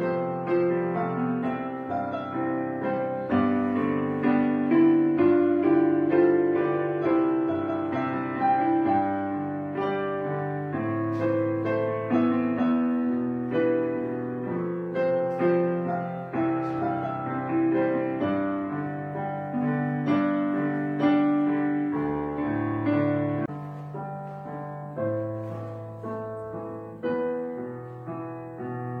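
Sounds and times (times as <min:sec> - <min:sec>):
gentle piano music: 0:00.0 - 0:29.0.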